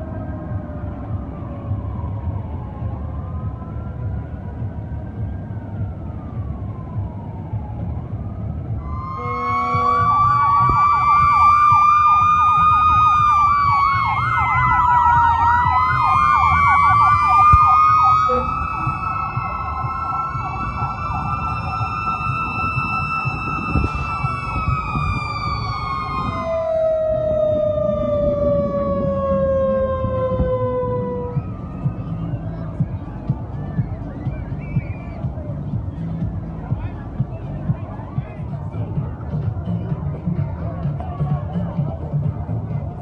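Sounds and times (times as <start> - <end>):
fire engine sirens wailing: 0.0 - 43.0
fast siren yelp: 1.7 - 32.8.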